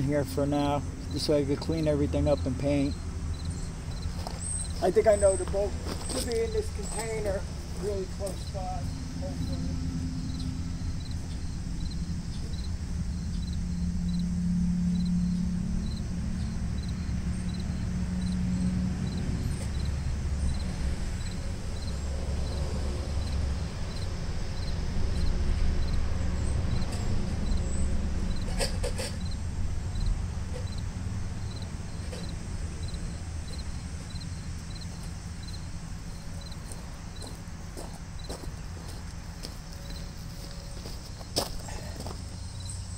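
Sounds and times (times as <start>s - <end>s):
insect chirping: 0.0s - 42.9s.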